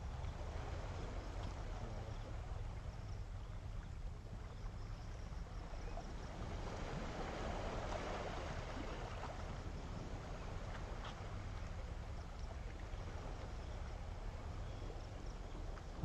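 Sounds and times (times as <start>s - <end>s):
steady low rumble: 0.0s - 6.9s, 9.5s - 16.0s
sea water washing on shore: 5.5s - 16.0s.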